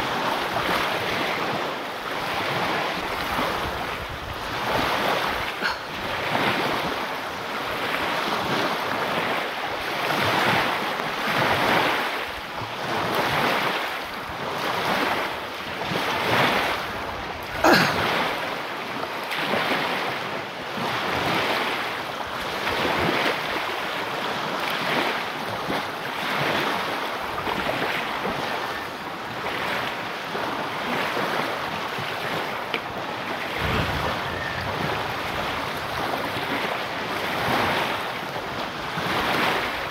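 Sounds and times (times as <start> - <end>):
surf washing on shore: 0.0 - 39.9
wind on microphone: 0.0 - 39.9.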